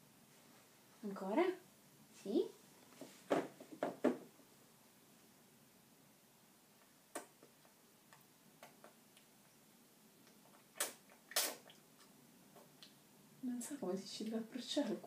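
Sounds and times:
baby mouth smacking: 7.1s - 9.3s, 10.2s - 13.0s.

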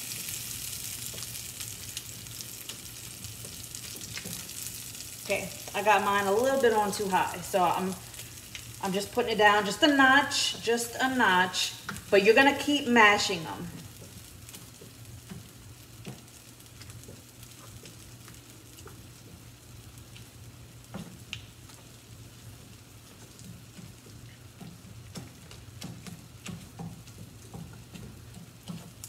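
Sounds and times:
beans sizzling in oil: 0.0s - 29.0s
potato masher squishing beans: 23.1s - 29.0s.

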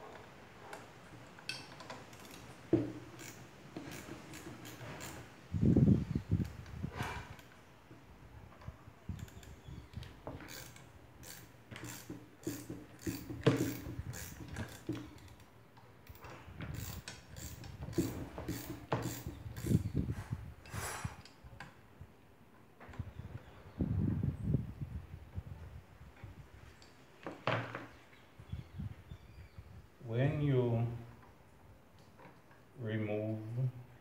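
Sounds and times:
ratcheting wrench clicking: 1.4s - 5.3s, 9.1s - 20.0s.

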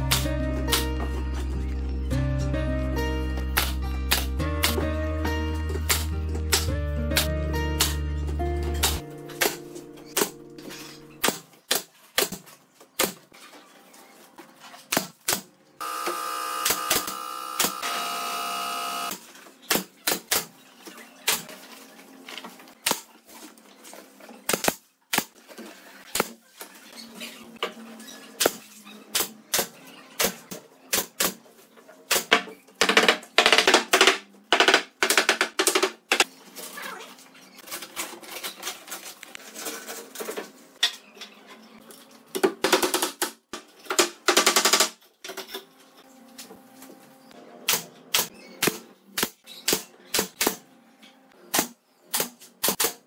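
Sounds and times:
pneumatic nail gun firing: 15.3s - 19.2s.

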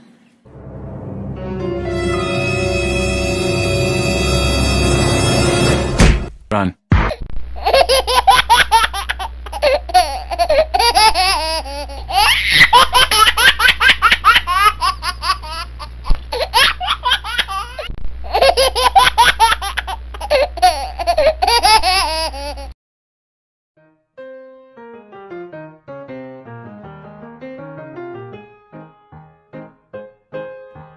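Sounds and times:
person laughing hard: 7.6s - 22.7s.

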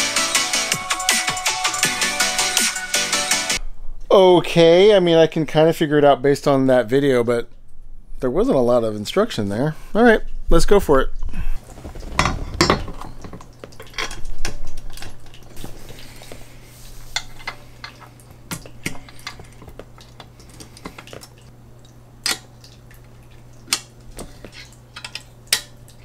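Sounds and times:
handling noise: 11.6s - 14.8s.

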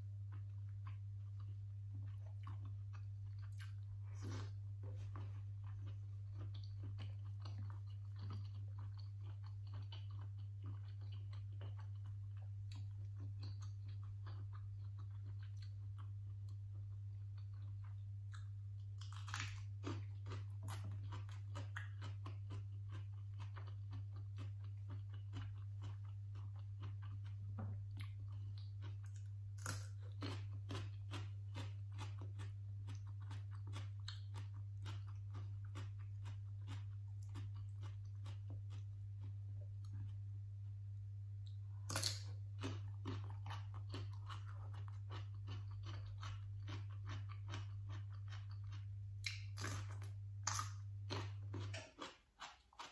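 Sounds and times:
steady low hum: 0.0s - 52.9s
chewing and crunching vegetables: 0.3s - 40.4s, 41.4s - 52.9s.

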